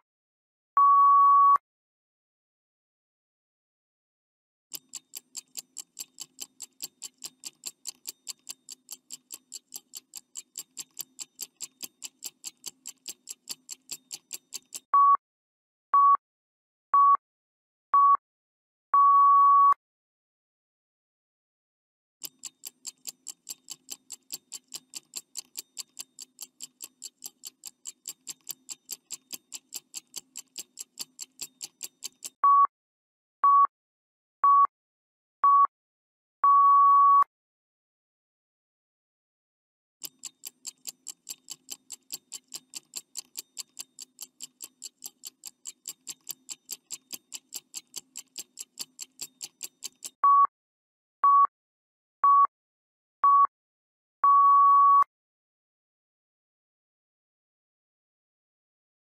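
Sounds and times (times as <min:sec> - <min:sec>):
stopwatch ticking: 0:04.7 - 0:14.9, 0:22.2 - 0:32.4, 0:40.0 - 0:50.2
long final beep: 0:54.3 - 0:55.0
short timer beeps: 0:54.3 - 0:55.1.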